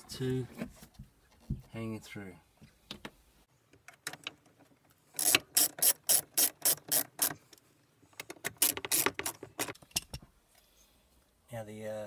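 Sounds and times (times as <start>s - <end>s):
ratchet wrench clicking: 5.2s - 7.4s, 8.6s - 9.7s.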